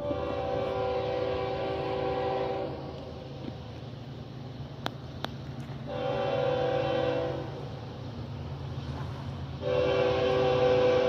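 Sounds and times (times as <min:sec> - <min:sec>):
locomotive air horn blasts: 0:00.0 - 0:03.2, 0:05.9 - 0:07.7, 0:09.6 - 0:11.0
low engine rumble: 0:00.0 - 0:11.0.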